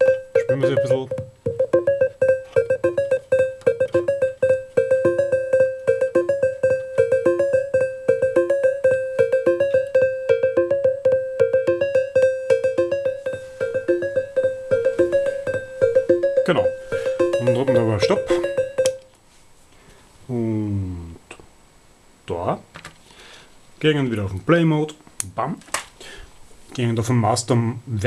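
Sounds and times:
synthesizer sequenced pattern: 0:00.0 - 0:19.1.

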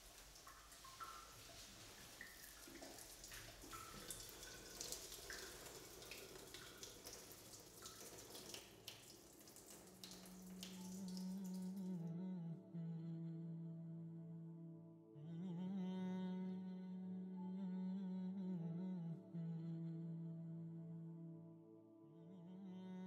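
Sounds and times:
water dripping on steel: 0:00.0 - 0:11.8
water trickling from a tap: 0:00.0 - 0:11.9
low hummed tone: 0:10.1 - 0:23.0.

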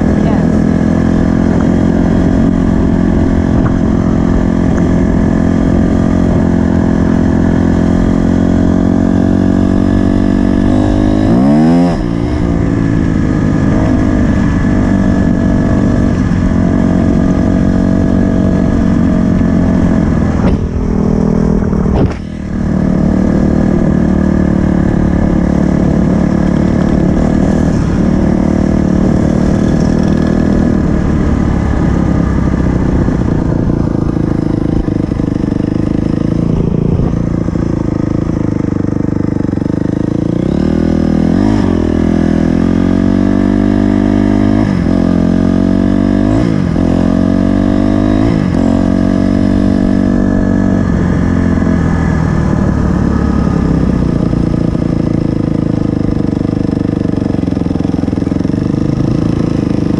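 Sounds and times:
motorcycle engine running: 0:00.0 - 0:59.9.

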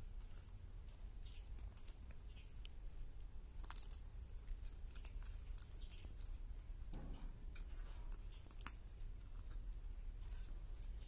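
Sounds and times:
beak clicking and snipping on meat: 0:03.4 - 0:11.0.

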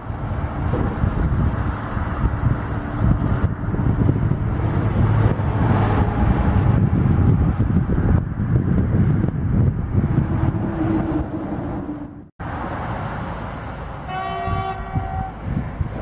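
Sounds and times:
freight train rumbling past: 0:00.0 - 0:07.9, 0:08.8 - 0:16.0
wind on microphone: 0:00.0 - 0:12.3, 0:14.2 - 0:16.0
electric locomotive horn blast: 0:14.0 - 0:15.4.

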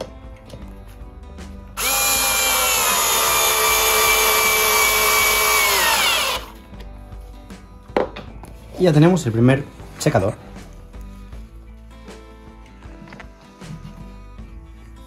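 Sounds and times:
drill driving screw into wood: 0:01.8 - 0:06.6.

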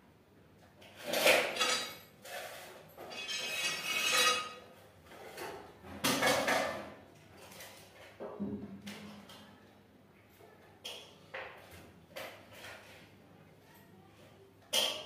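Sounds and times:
household objects clattering: 0:00.9 - 0:09.3.

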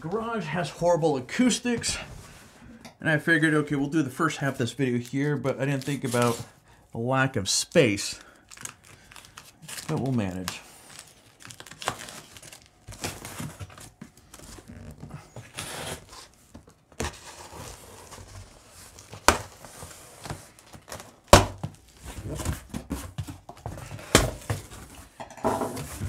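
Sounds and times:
tape and cardboard tearing: 0:11.4 - 0:18.3
cardboard box scraping and rustling: 0:17.0 - 0:19.0.

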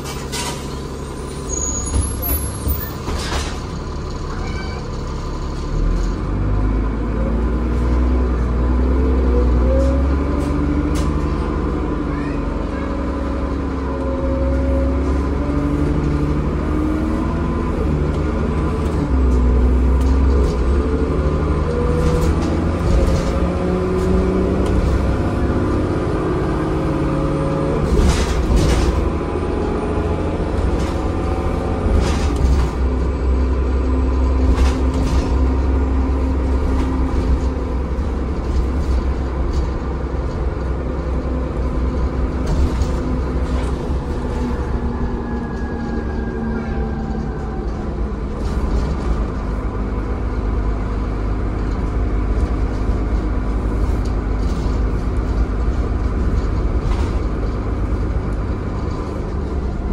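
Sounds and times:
bus diesel engine rumble: 0:00.0 - 0:59.9
bus body knocks and rattles: 0:01.8 - 0:04.9, 0:18.0 - 0:44.8, 0:47.7 - 0:59.9.

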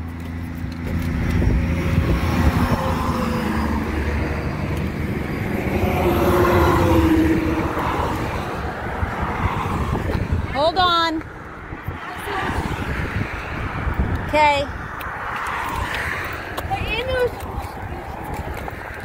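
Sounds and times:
highway traffic passing: 0:00.0 - 0:19.0.

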